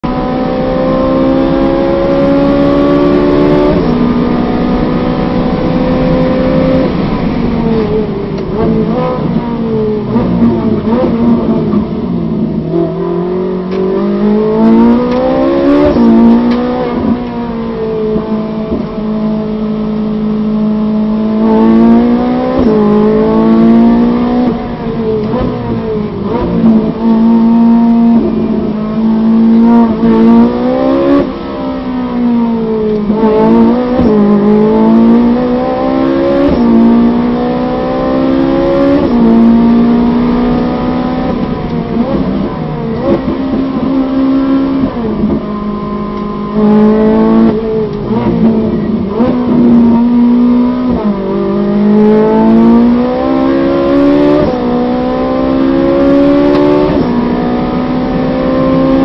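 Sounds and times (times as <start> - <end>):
racing car engine revving: 0.0 - 59.0.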